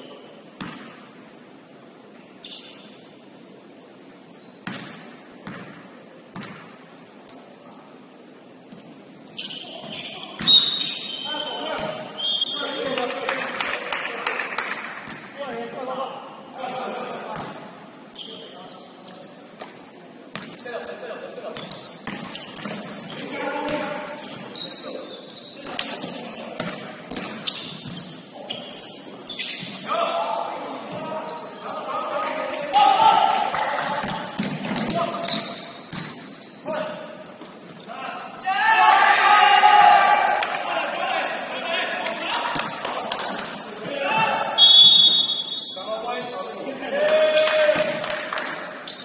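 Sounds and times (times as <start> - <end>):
high-pitched court noise: 0.0 - 1.2, 8.7 - 13.1, 14.6 - 16.6, 17.3 - 49.0
basketball bouncing: 0.6 - 0.9, 4.6 - 6.7, 33.8 - 36.2.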